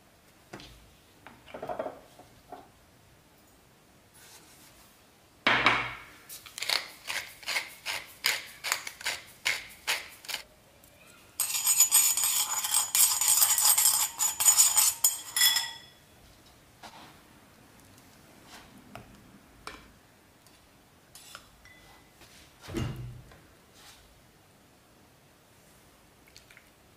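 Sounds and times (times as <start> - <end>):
seasoning shaker shakes: 6.3 - 10.4
grinder grinding with faint whine: 11.4 - 15.4.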